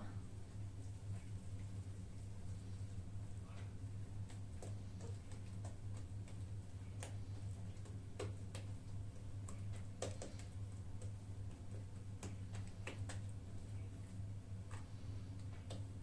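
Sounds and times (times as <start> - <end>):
fingers tapping dough: 3.5 - 16.0.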